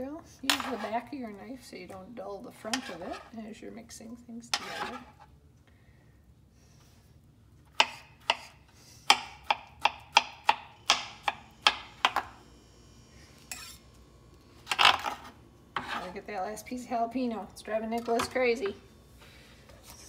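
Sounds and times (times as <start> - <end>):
knife chopping on cutting board: 7.8 - 8.5.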